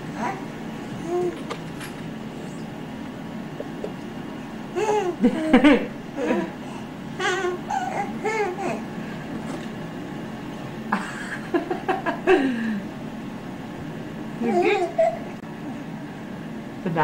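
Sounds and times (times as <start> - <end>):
baby babbling and laughing: 0.1 - 1.4, 4.7 - 5.6, 7.2 - 8.9, 14.4 - 15.4.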